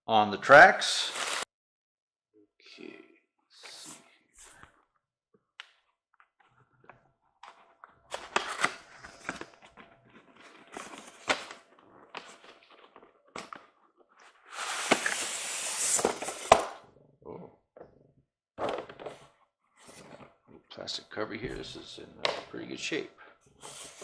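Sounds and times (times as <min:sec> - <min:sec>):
styrofoam scraping: 0:00.9 - 0:01.4, 0:14.4 - 0:16.5.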